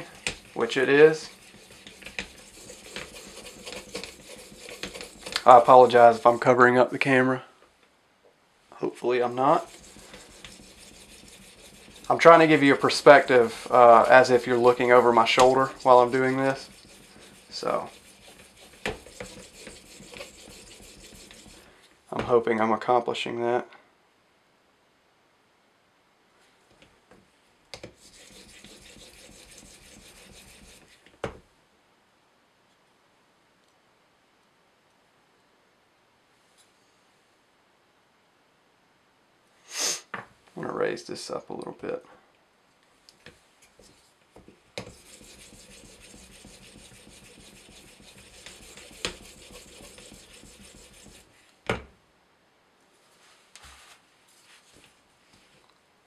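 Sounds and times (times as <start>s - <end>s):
sharpening stone rasping on knife: 0.0s - 5.5s, 9.6s - 21.6s, 28.0s - 30.8s, 44.8s - 51.2s.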